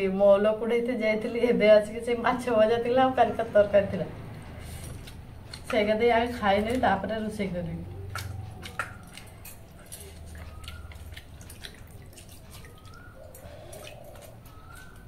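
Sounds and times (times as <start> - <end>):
wet squishes of mixing rice: 4.4 - 15.0.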